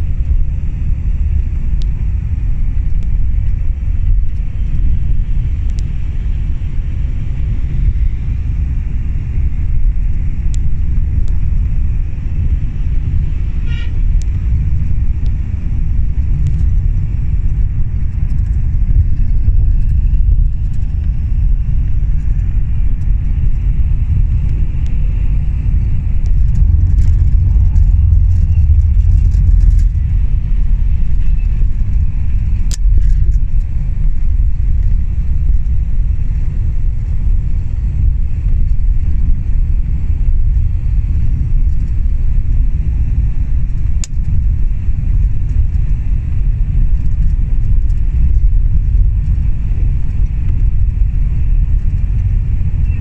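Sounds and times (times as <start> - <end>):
bus engine and road rumble: 0.0 - 53.0
short horn toot: 13.6 - 14.0.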